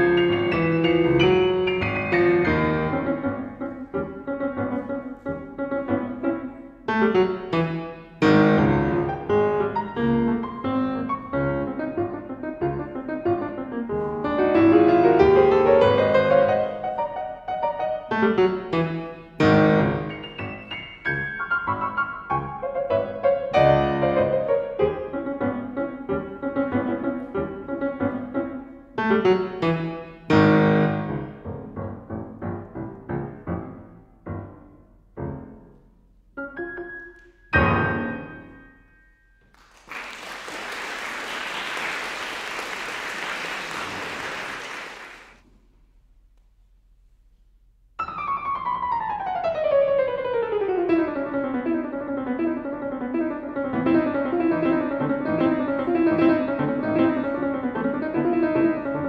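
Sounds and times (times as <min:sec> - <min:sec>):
solo grand piano: 0:00.0 - 0:39.4, 0:48.0 - 0:59.0
audience applause: 0:39.5 - 0:45.4.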